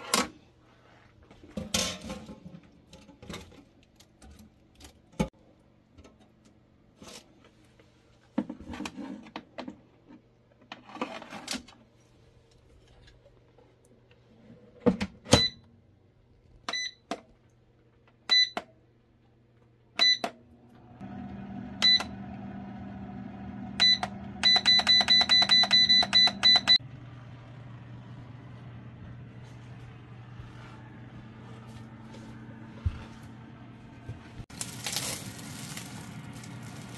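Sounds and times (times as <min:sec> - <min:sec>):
air fryer fan humming: 0:20.0 - 0:36.9
control panel beeps: 0:23.8 - 0:26.8.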